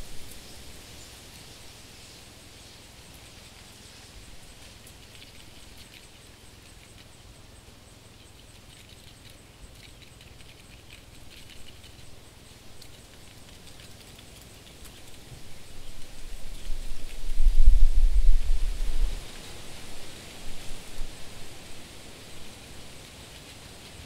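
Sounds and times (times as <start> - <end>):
steady hiss: 0.0 - 24.0
cockroach legs skittering: 2.9 - 21.8.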